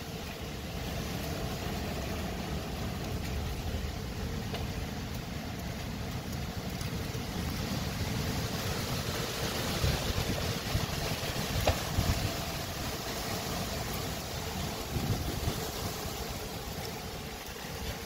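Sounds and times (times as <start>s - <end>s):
wind buffeting microphone: 0.7s - 18.0s.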